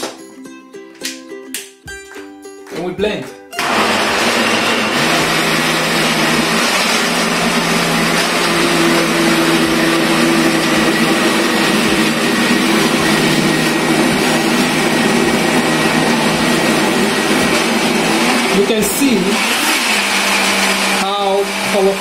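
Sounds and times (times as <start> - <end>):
blender motor whining: 3.6 - 22.0.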